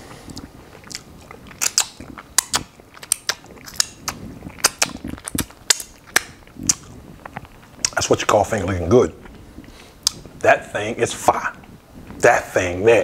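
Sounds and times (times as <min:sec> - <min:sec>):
chewing with lip smacks: 0:00.1 - 0:10.4.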